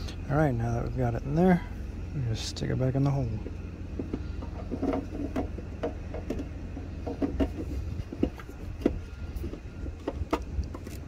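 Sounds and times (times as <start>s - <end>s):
low steady rumble: 0.0s - 11.0s.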